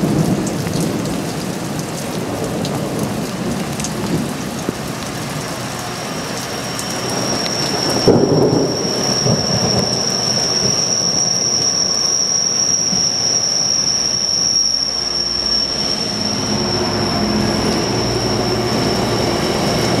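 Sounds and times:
freight train rumbling past: 2.4s - 20.0s
high-pitched wheel squeal: 5.4s - 20.0s.

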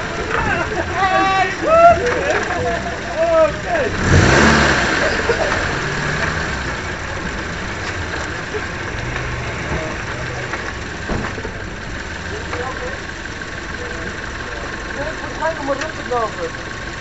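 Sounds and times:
race car engine idling: 0.0s - 17.0s.

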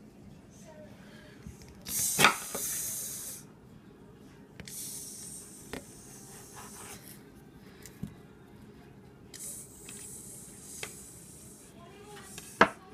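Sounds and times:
heated knife hissing: 1.9s - 3.5s, 4.7s - 7.0s.

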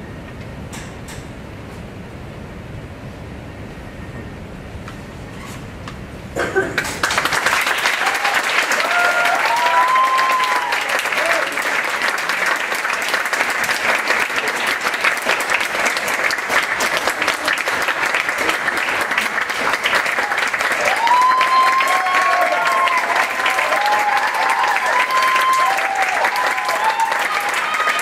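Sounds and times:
audience clapping: 6.8s - 28.0s
people whooping and cheering: 7.5s - 12.1s, 16.8s - 28.0s.

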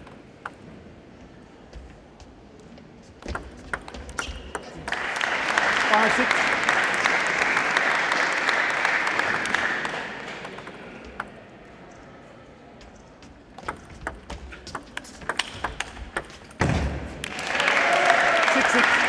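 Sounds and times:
table tennis ball clicking: 3.2s - 4.8s, 10.4s - 11.4s, 13.6s - 16.6s
applause: 4.8s - 10.6s, 17.2s - 19.0s.

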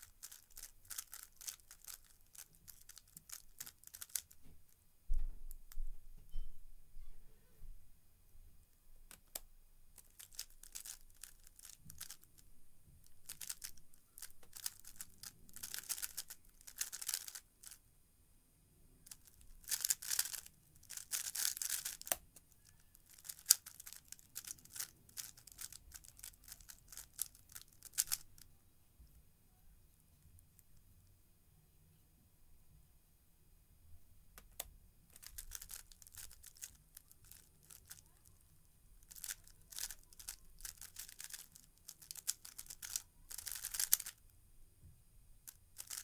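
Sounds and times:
plastic puzzle cube clicking: 0.1s - 4.4s, 10.0s - 12.4s, 13.1s - 17.8s, 19.1s - 28.4s, 34.4s - 38.1s, 39.0s - 44.2s, 45.5s - 46.0s.

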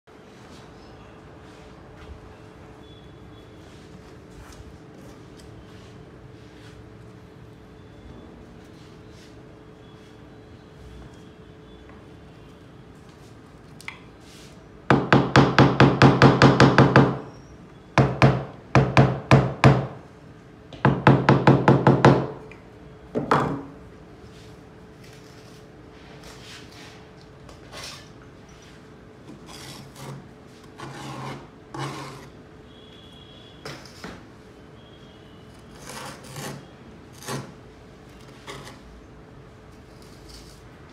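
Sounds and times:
rapid knocking on ceramic tile: 14.9s - 17.2s, 20.9s - 22.4s
steel trowel scraping mortar: 29.4s - 32.4s, 35.6s - 37.6s.

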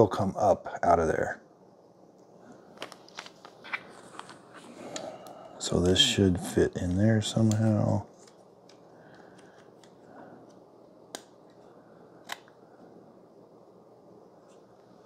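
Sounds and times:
faint handling noise: 2.1s - 5.6s.

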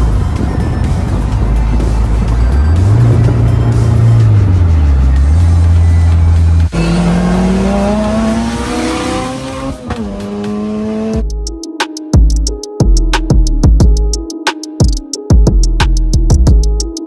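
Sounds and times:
car engine accelerating: 1.1s - 11.2s
music with drum beat: 10.1s - 17.0s.

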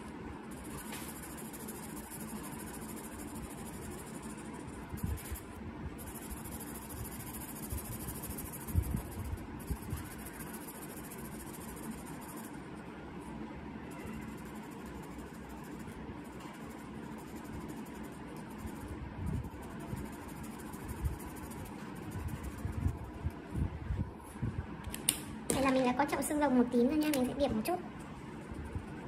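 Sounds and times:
marker pen scratching paper: 0.5s - 5.4s, 6.0s - 12.6s, 14.0s - 23.3s.

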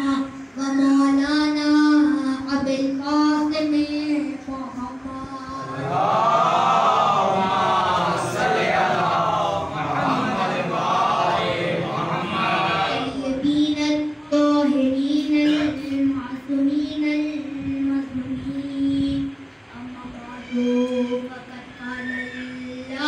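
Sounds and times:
boy singing long notes: 0.0s - 23.0s
voices chanting together: 5.6s - 13.2s.

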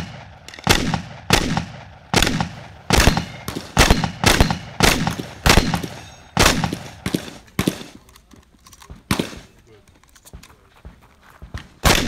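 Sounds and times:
shotgun shots: 0.0s - 8.0s, 8.9s - 9.6s, 11.5s - 12.0s.

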